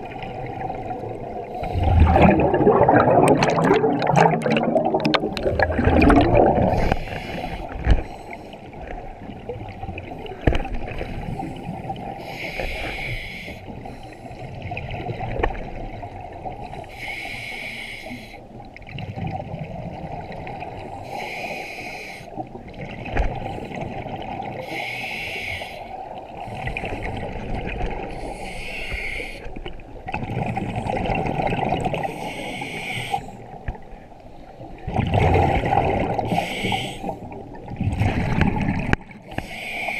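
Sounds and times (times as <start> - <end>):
underwater bubbling: 0.0 - 39.9
scuba regulator hiss: 6.8 - 8.5, 12.2 - 13.7, 16.9 - 18.4, 21.1 - 22.3, 24.6 - 25.9, 28.2 - 29.5, 32.1 - 33.4, 36.3 - 37.2, 39.3 - 39.9.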